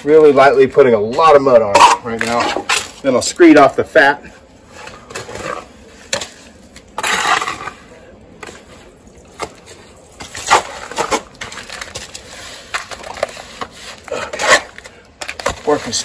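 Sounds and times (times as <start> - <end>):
trowel scraping wet plaster: 4.8 - 16.0.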